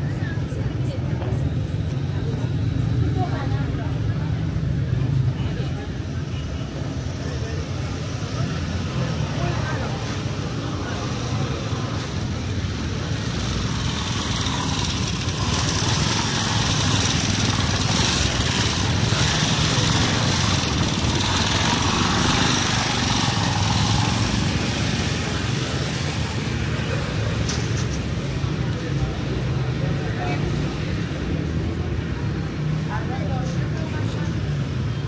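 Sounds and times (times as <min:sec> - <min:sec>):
busy street noise: 0:00.0 - 0:35.0
small petrol engine running: 0:10.3 - 0:28.6.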